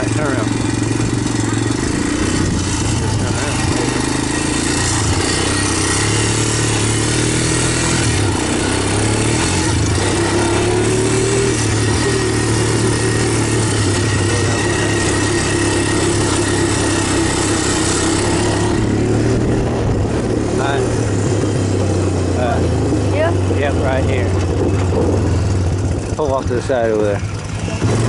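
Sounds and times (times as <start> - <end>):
off-road vehicle engine running: 0.0 - 28.0
steady noisy rush: 0.0 - 28.0.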